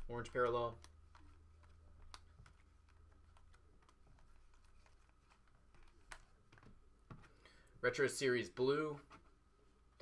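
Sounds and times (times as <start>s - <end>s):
low steady hum: 0.0s - 10.0s
trading cards being flipped: 0.3s - 7.4s.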